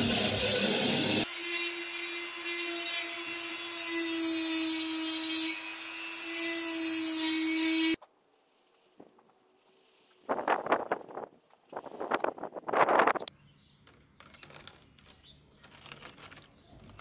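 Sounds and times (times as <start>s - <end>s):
electric rotary tool grinding wood: 0.2s - 8.0s.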